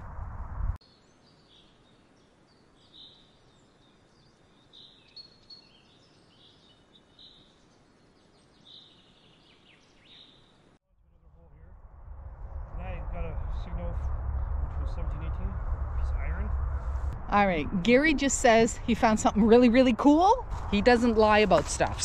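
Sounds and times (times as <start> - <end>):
faint high bird chirps: 0.8 - 10.6.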